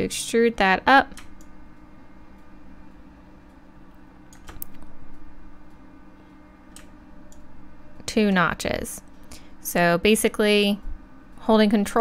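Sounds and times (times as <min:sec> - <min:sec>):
low electrical hum: 0:00.0 - 0:12.0
keyboard and mouse clicks: 0:04.3 - 0:04.9.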